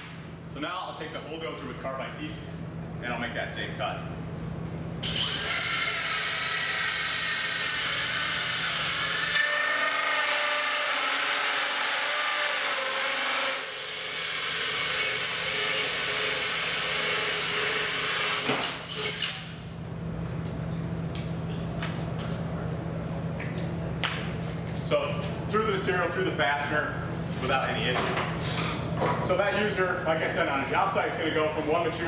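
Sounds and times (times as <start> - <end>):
drill hole saw cutting wood: 5.0 - 19.4.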